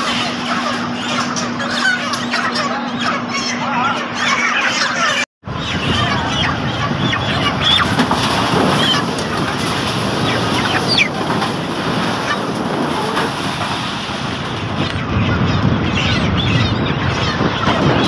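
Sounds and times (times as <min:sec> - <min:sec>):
chickens squawking and clucking: 0:00.0 - 0:18.0
constant rushing noise: 0:05.5 - 0:18.0.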